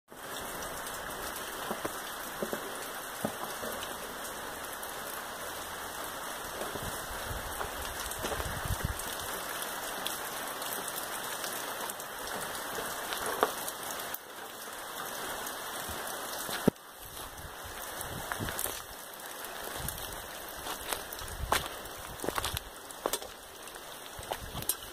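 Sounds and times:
rain pattering: 0.1 - 24.9.

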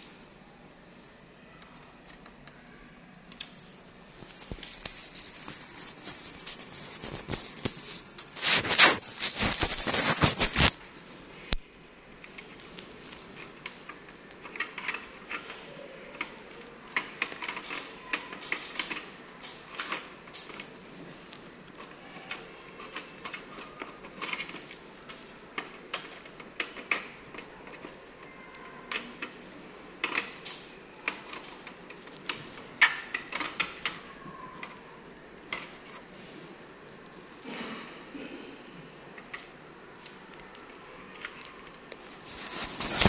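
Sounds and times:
rustling scrape: 4.1 - 10.8, 42.0 - 43.0.

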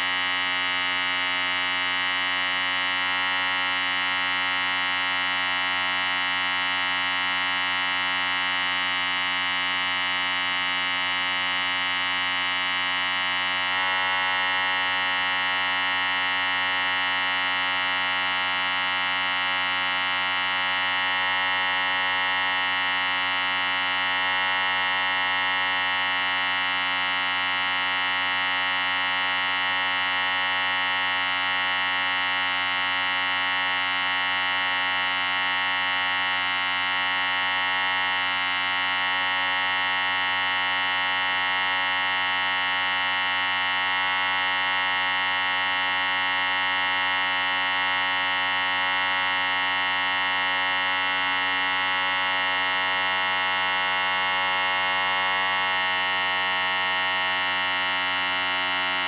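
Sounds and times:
electric hair clippers buzzing: 0.0 - 59.0.

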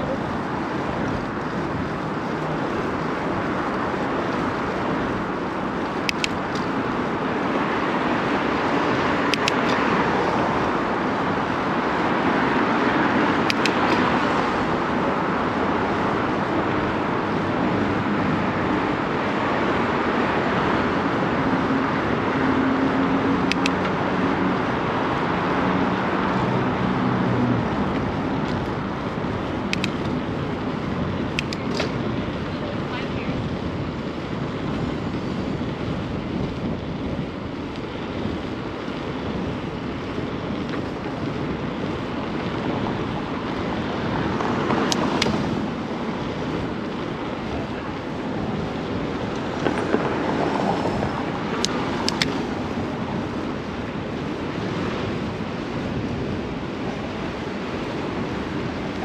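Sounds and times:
low engine hum: 0.0 - 59.0
street traffic passing: 0.0 - 59.0
sharp clicks: 5.8 - 6.7, 9.3 - 9.8, 13.4 - 14.0, 23.5 - 23.9, 29.7 - 30.1, 31.3 - 32.0, 51.6 - 52.4.

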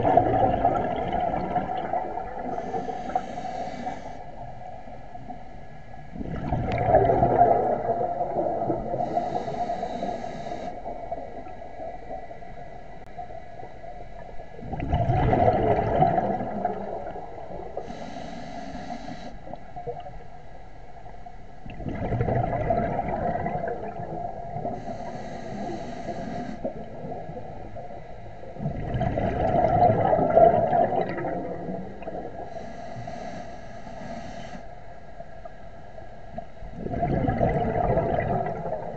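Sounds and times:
exhaled bubbles gurgling underwater: 0.0 - 38.9
regulator inhalation hiss: 2.5 - 4.4, 9.0 - 11.0, 17.8 - 19.5, 24.8 - 26.8, 32.5 - 34.7.

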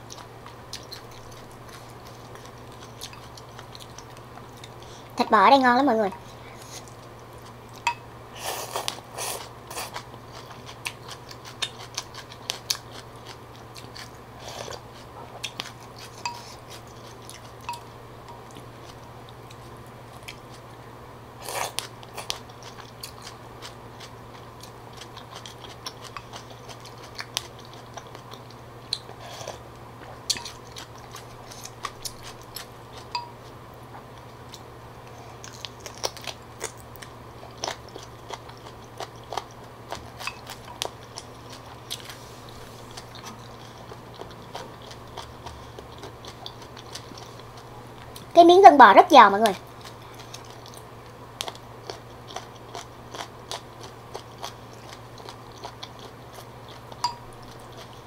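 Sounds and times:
steady low hum: 0.0 - 58.0
wet chewing and biting: 8.6 - 17.8, 21.4 - 34.7, 35.4 - 48.3, 49.7 - 58.0.

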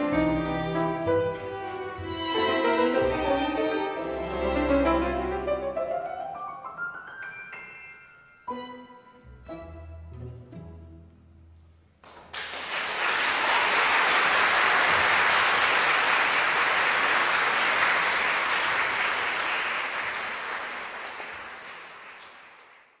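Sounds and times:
string orchestra and piano: 0.0 - 11.9
audience applause: 12.0 - 23.0.

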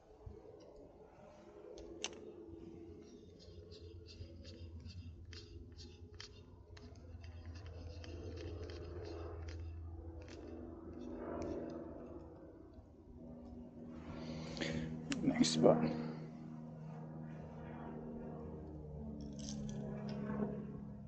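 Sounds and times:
reel ticking: 3.0 - 12.3.

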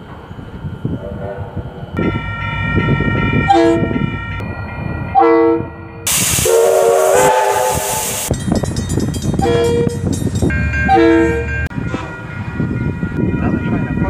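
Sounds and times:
level crossing bells ringing: 0.1 - 6.2, 8.1 - 14.0
diesel locomotive horn toots: 2.0 - 4.4, 5.1 - 8.3, 9.4 - 10.0, 10.6 - 12.2
steam locomotive whistle: 5.2 - 8.3, 9.4 - 10.0
loud steam hiss: 6.1 - 8.4.

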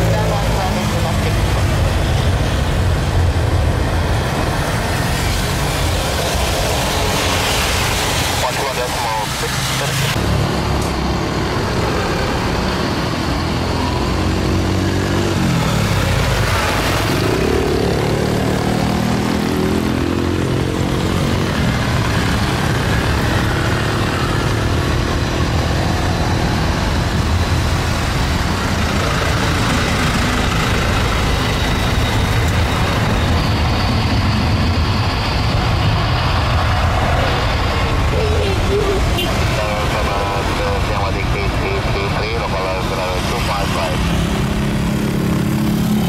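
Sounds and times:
jet engines rumbling: 0.0 - 46.0.

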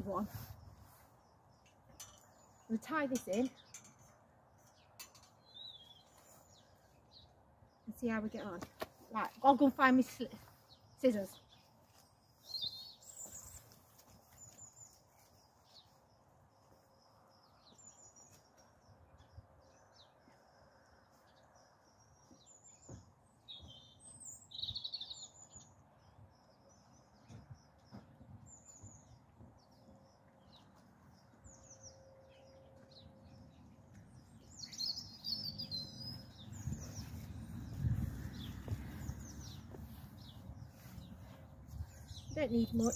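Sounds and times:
small birds chirping: 0.0 - 42.9
footsteps on plastic sheeting: 36.5 - 42.2.

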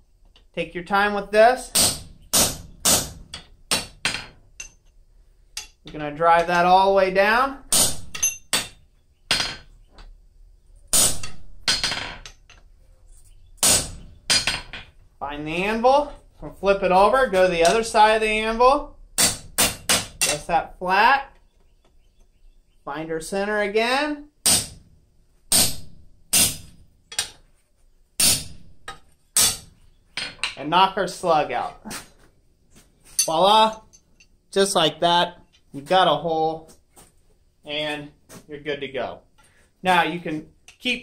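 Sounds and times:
hammer striking steel punch: 1.7 - 4.8, 13.6 - 14.7, 24.4 - 24.8.

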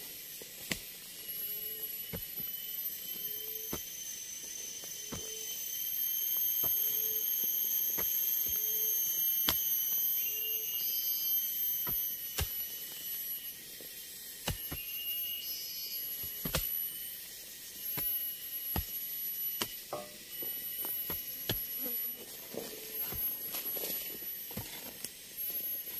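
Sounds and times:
forest insects droning: 0.0 - 25.9
hand tool striking ground: 0.5 - 1.0, 2.1 - 3.9, 5.0 - 5.5, 7.9 - 8.7, 9.4 - 10.0, 11.8 - 12.7, 14.4 - 14.9, 16.2 - 16.8, 17.9 - 25.9.

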